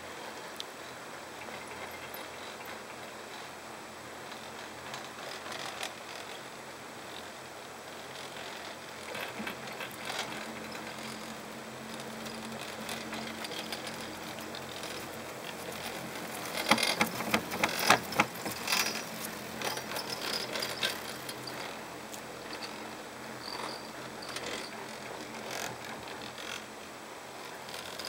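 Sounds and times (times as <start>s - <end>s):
chairlift background noise: 0.0s - 28.0s
chairlift grip clicking and clattering: 8.1s - 22.9s.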